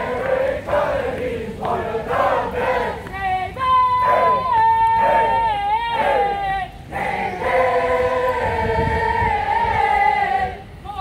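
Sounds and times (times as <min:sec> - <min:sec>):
group singing marching cadence: 0:00.0 - 0:10.8.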